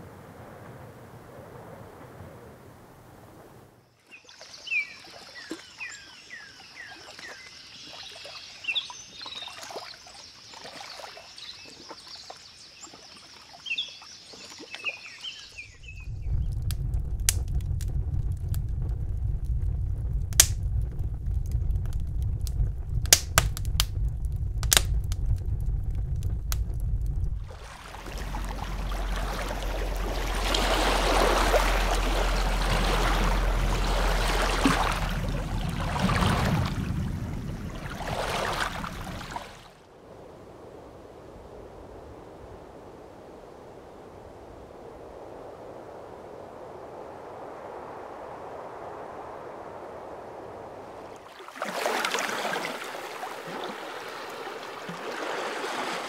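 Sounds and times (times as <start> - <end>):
rushing water: 4.0 - 16.1, 21.2 - 45.3, 46.0 - 56.0
wood fire crackling: 16.0 - 39.5.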